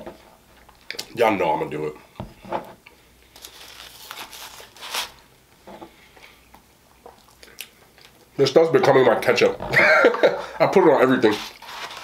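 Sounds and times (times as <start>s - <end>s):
foil wrapper crinkling: 3.3s - 5.2s, 11.1s - 12.0s.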